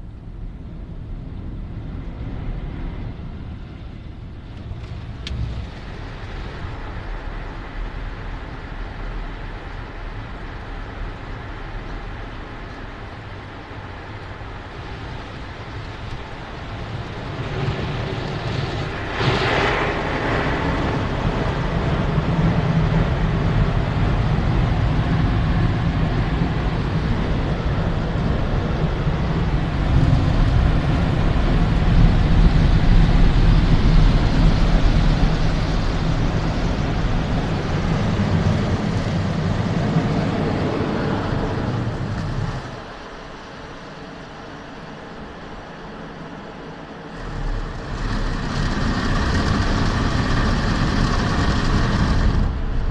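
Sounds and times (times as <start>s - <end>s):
low rumble: 0.0s - 52.9s
car wash brushes rotating: 47.1s - 52.9s.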